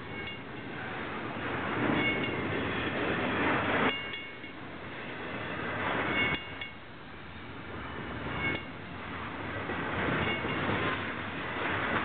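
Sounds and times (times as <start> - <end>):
high metallic ring: 0.0 - 0.7, 2.0 - 2.5, 6.1 - 6.8, 8.3 - 8.8, 10.2 - 10.6
freight train rolling past: 0.0 - 12.0.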